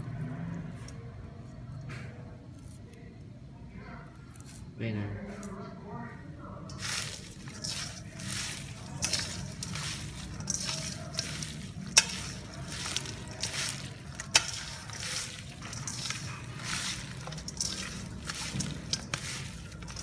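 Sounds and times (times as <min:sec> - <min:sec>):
hand squishing chicken in bowl: 0:06.6 - 0:20.0.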